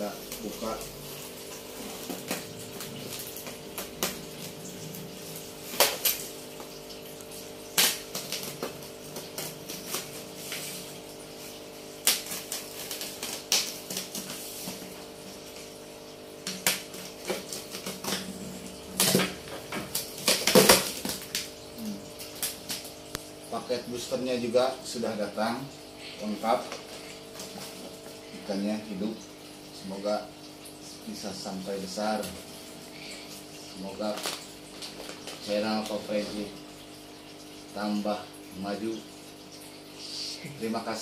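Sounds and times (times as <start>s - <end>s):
packing tape cut and torn: 7.7s - 10.8s, 12.0s - 14.4s, 16.4s - 21.5s.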